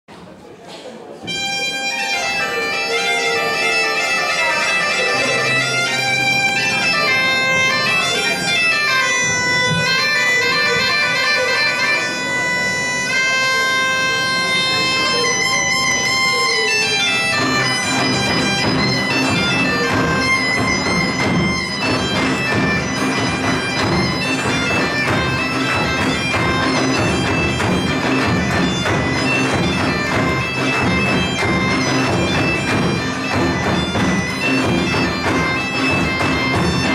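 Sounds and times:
bagpipe playing lively melody: 1.2s - 36.9s
side drum: 17.4s - 36.9s.

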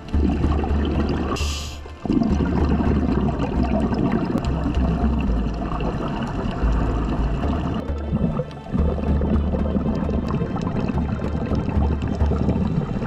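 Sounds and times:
exhaled bubbles gurgling: 0.0s - 13.0s
scuba regulator inhaling hiss: 1.4s - 1.9s.

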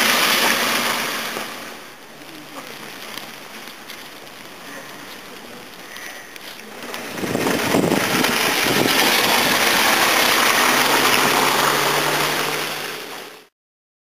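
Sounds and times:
car tyres hissing through slush: 0.0s - 13.5s.

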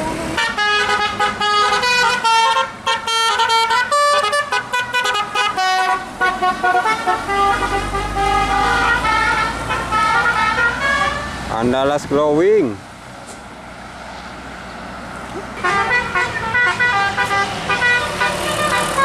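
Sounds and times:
bus engine rumble: 0.0s - 19.0s
musical air horn playing tune: 0.3s - 11.4s, 15.6s - 19.0s.

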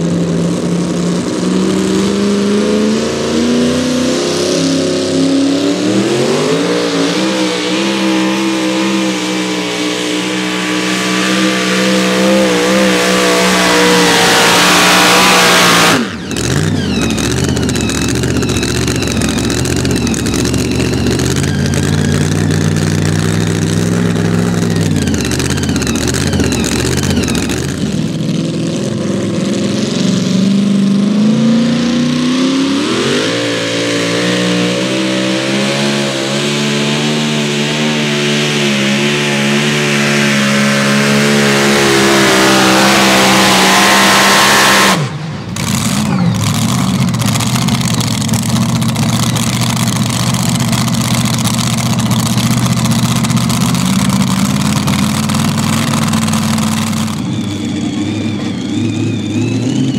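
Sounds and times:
truck engine at full throttle: 0.0s - 59.9s
truck engine revving: 0.0s - 59.9s
uneven engine idle: 16.1s - 29.3s, 45.2s - 59.9s.

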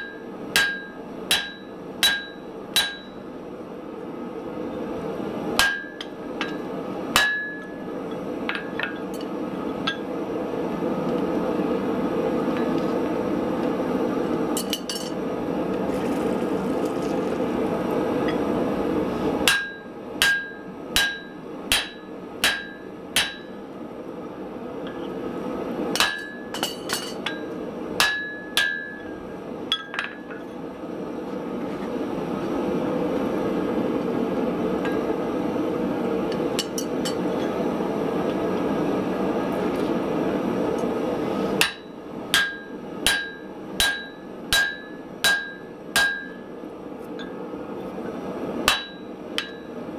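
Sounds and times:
hammer striking steel punch: 0.0s - 3.2s, 5.6s - 6.6s, 7.2s - 7.7s, 19.5s - 23.5s, 26.0s - 27.4s, 28.0s - 29.0s, 41.6s - 46.4s, 48.7s - 49.7s.

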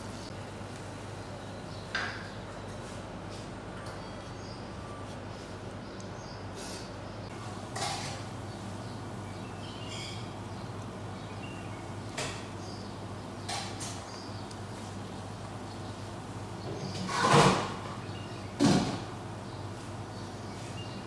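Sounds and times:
kitchen scrapes and knocks: 17.0s - 17.8s.

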